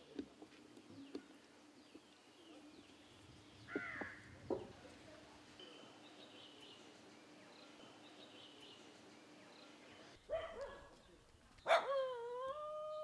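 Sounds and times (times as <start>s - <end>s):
dog howling: 11.7s - 13.0s.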